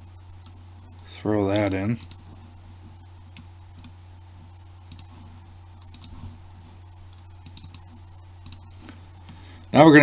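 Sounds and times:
low electrical hum: 0.0 - 10.0
keyboard and mouse clicking: 4.9 - 5.1, 5.8 - 6.2, 7.1 - 8.8.

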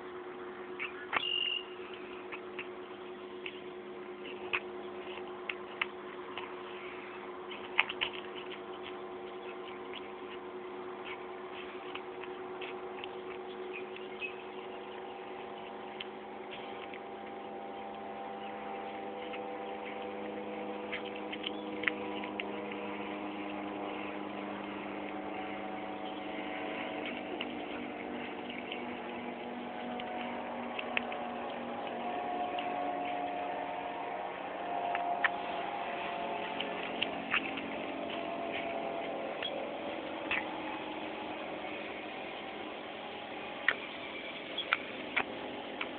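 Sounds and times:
steady hum: 0.0 - 45.9.

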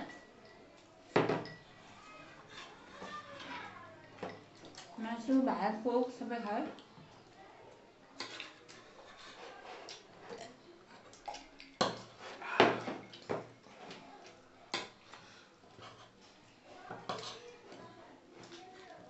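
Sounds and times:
metal spoon clinking on plate: 1.2 - 1.7.

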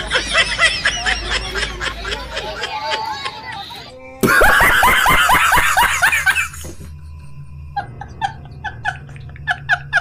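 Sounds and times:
man laughing hysterically: 0.0 - 3.0, 4.2 - 6.9, 7.8 - 10.0.

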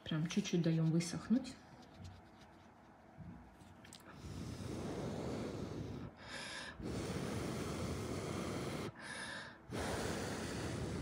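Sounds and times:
person blowing breath: 4.1 - 11.0.

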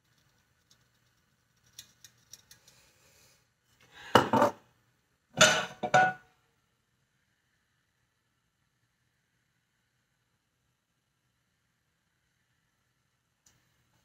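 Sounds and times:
skillet clattering on stove grate: 5.4 - 6.2.

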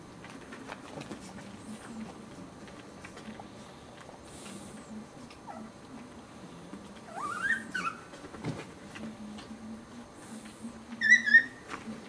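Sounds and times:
puppy whining: 5.4 - 5.8, 7.0 - 8.2, 11.0 - 11.7.

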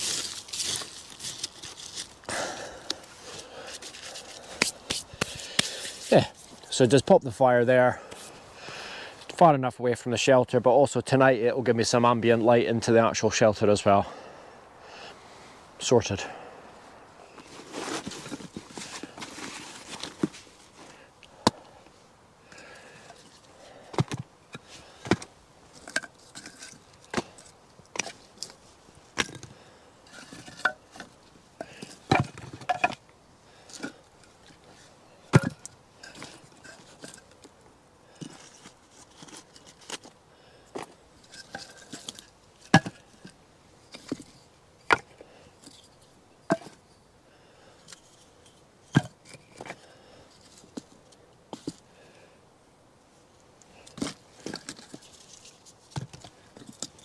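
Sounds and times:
firewood knocking and clattering: 30.2 - 33.0, 35.3 - 37.3.

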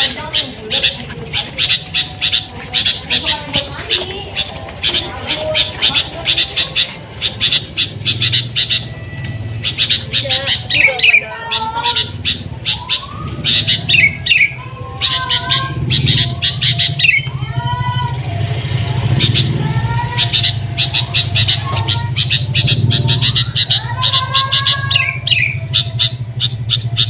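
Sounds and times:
bird singing with sharp chirps: 0.0 - 27.0
sliding whistled bird notes: 11.9 - 17.5.

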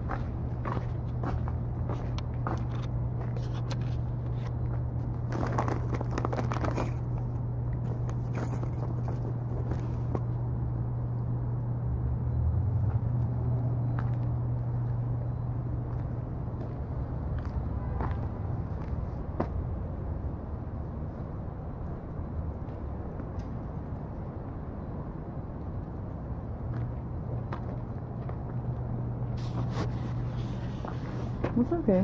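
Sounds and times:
footsteps crunching in snow: 29.4 - 31.7.

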